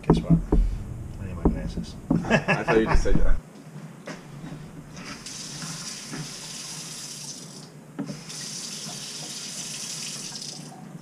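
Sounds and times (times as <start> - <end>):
water running into sink: 5.0 - 10.8.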